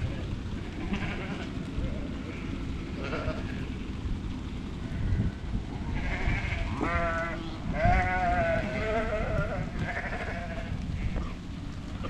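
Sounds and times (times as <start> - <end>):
steady low rumble: 0.0 - 12.0
sheep bleating: 0.6 - 1.5, 2.3 - 3.6, 5.9 - 11.4.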